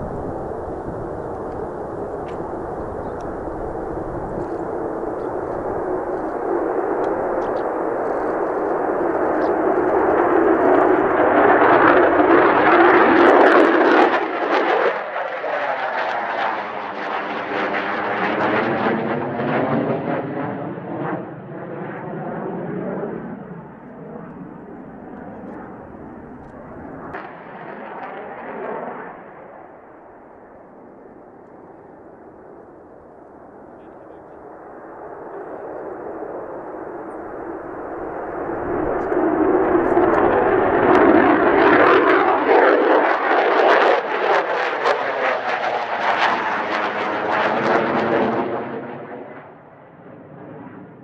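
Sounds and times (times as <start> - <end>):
jet engine roar: 0.0 - 51.0
second jet taking off: 0.0 - 51.0.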